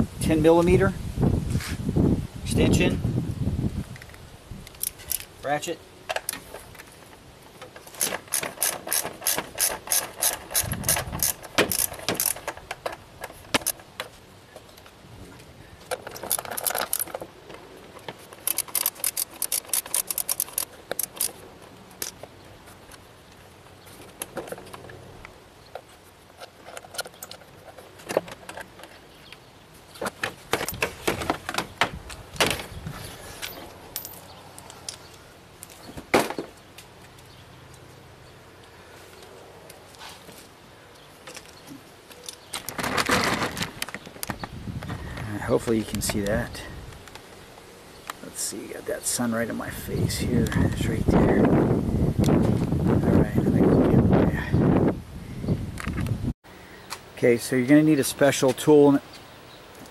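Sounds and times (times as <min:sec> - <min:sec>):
socket ratchet clicking: 0:08.0 - 0:12.5, 0:18.4 - 0:21.4
metal tool clinks and knocks: 0:33.4 - 0:35.1.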